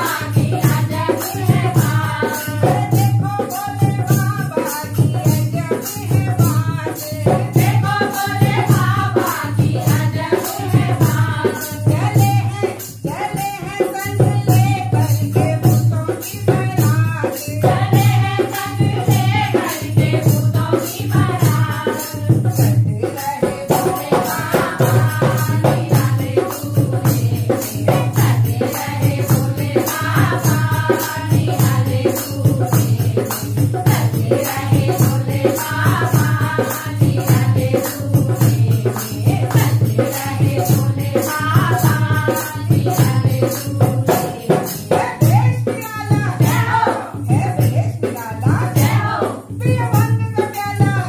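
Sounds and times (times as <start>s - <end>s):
hand drum beat: 0.0s - 51.0s
women singing in unison: 0.0s - 51.0s.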